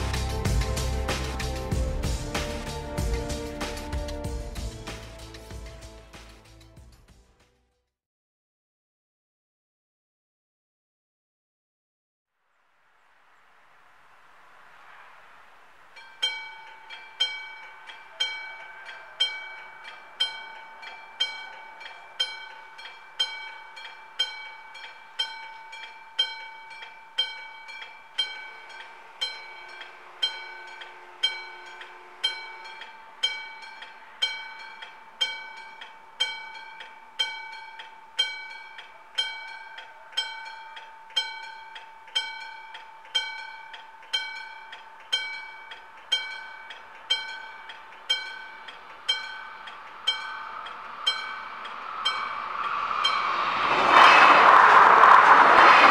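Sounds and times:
rising hiss: 0:12.8 - 0:21.9, 0:47.7 - 0:55.9
level crossing warning bells: 0:15.9 - 0:53.9.

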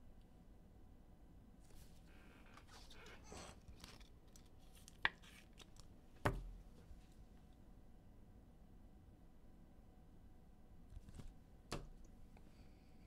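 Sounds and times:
card and plastic rustling: 0:01.7 - 0:06.4.

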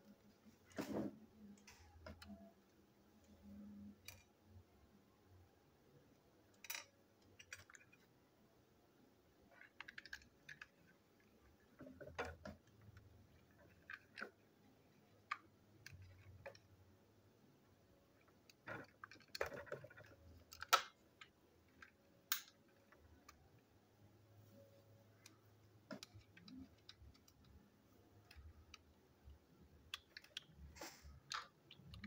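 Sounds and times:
plastic toy parts clicking: 0:03.8 - 0:04.4, 0:06.5 - 0:08.1, 0:09.5 - 0:16.8, 0:18.1 - 0:23.7, 0:25.2 - 0:32.0.

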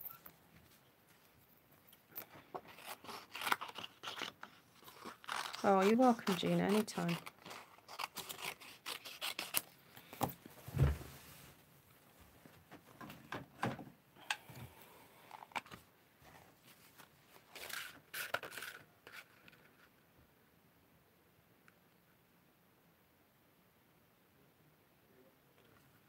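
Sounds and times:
paper clicks and rustles: 0:02.2 - 0:10.4, 0:16.9 - 0:19.9.

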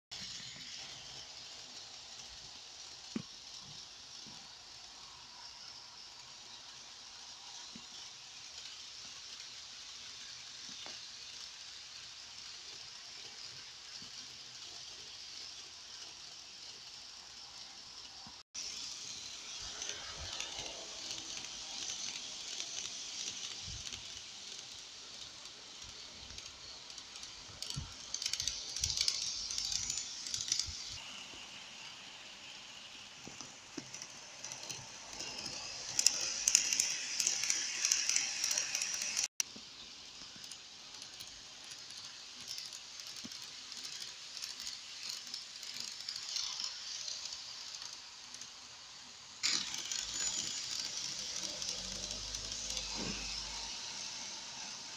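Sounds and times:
model train whirring: 0:00.1 - 0:54.9
wheels rattling on rails: 0:00.1 - 0:54.9.

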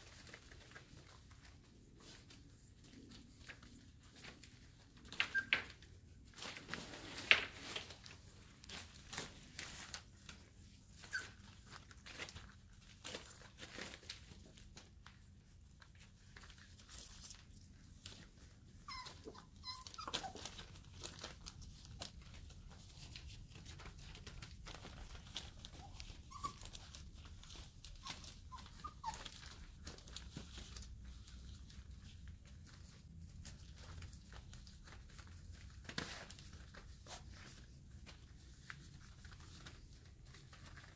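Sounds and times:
puppies scuffling on a blanket: 0:00.0 - 0:40.9
high-pitched puppy squeaks: 0:05.0 - 0:05.9, 0:11.0 - 0:11.8, 0:18.7 - 0:21.2, 0:25.5 - 0:30.3.

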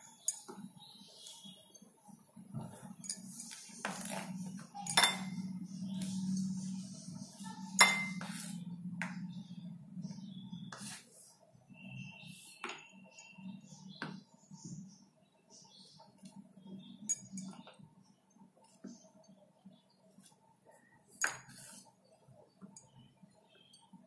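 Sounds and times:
steady low hum: 0:00.8 - 0:12.6.

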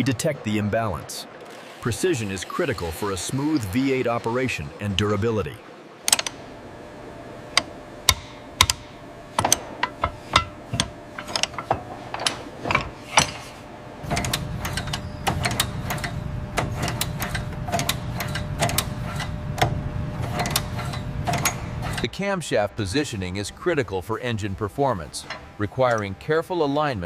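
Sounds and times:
low machine hum: 0:00.0 - 0:27.0
ratchet wrench clicking: 0:06.1 - 0:06.4, 0:07.6 - 0:13.4, 0:14.1 - 0:16.2, 0:16.8 - 0:22.0
metal tools clinking on metal: 0:09.4 - 0:16.1.

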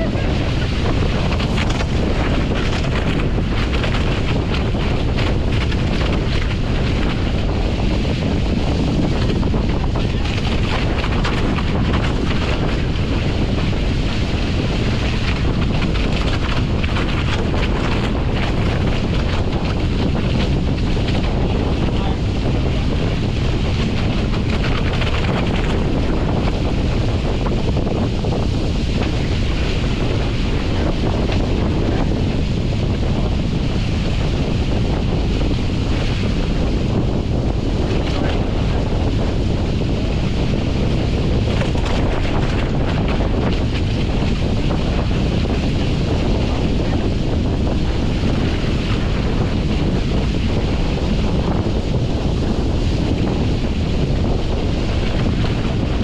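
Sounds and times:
water rushing along hulls: 0:00.0 - 0:56.0
wind buffeting microphone: 0:00.0 - 0:56.0.

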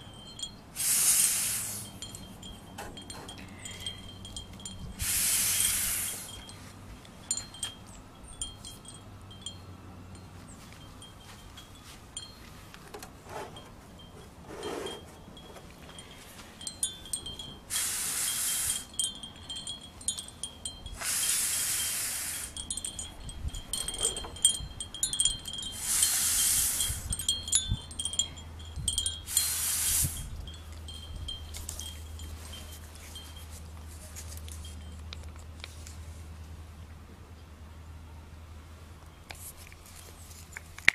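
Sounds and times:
wind chimes ringing: 0:00.0 - 0:00.8, 0:01.6 - 0:35.2
short hisses: 0:00.8 - 0:02.0, 0:05.0 - 0:06.4, 0:17.7 - 0:18.9, 0:21.0 - 0:22.6, 0:25.8 - 0:27.1, 0:29.3 - 0:30.3.

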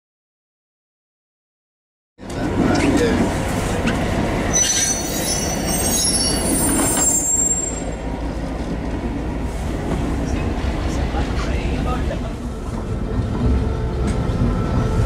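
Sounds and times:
locomotive low rumble: 0:02.2 - 0:15.0
wheel flanges squealing: 0:04.5 - 0:08.0.

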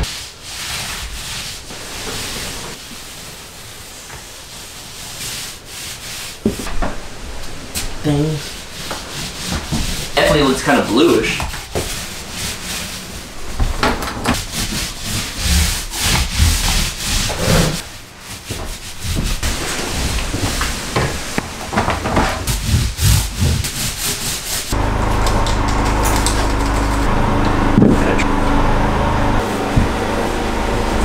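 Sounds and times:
paint roller rubbing on drywall: 0:00.0 - 0:25.0
knocks and scrapes of building work: 0:04.0 - 0:28.3
steady low hum: 0:24.7 - 0:31.0.

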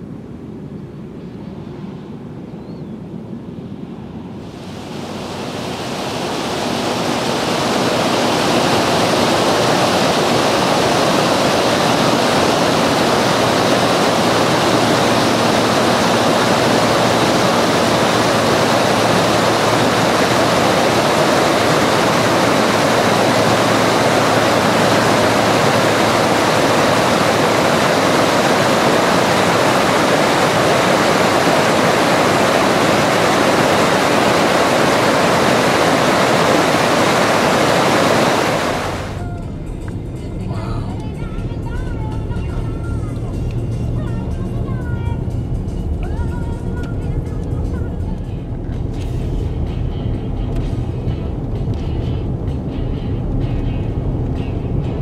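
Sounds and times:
creek water rushing over boulders: 0:04.5 - 0:39.2.

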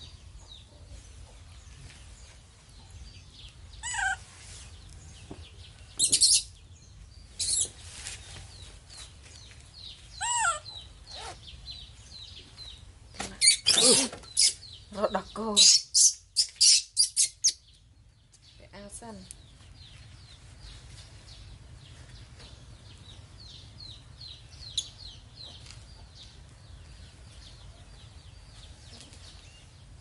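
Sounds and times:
baby macaque high-pitched calls: 0:03.8 - 0:04.2, 0:06.0 - 0:06.6, 0:10.1 - 0:11.4, 0:13.4 - 0:14.6, 0:15.5 - 0:17.6.

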